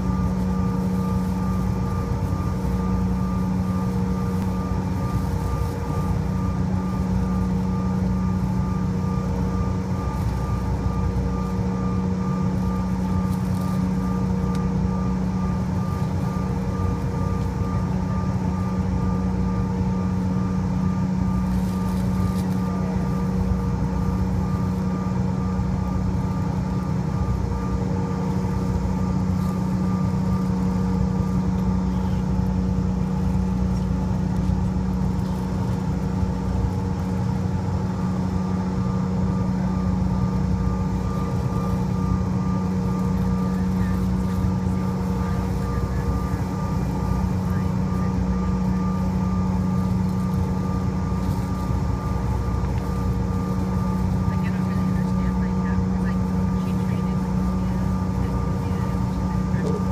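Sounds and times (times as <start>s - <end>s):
aircraft engines droning: 0.0s - 59.9s.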